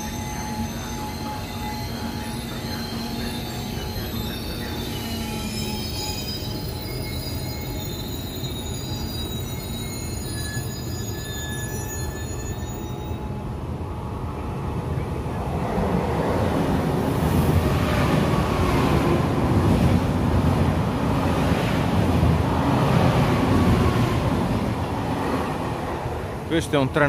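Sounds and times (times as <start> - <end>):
high squeal of wheels: 0.0 - 13.3.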